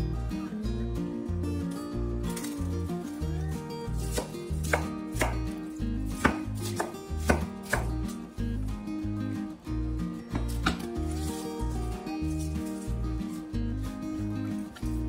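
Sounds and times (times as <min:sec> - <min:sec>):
background music: 0:00.0 - 0:15.0
knife chopping on cutting board: 0:04.1 - 0:08.1.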